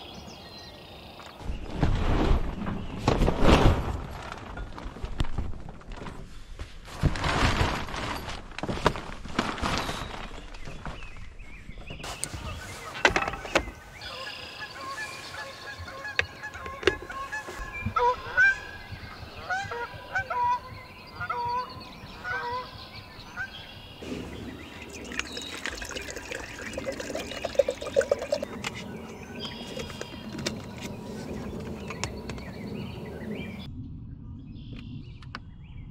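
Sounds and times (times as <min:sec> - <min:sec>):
geese honking: 0:14.0 - 0:18.8, 0:19.4 - 0:22.7.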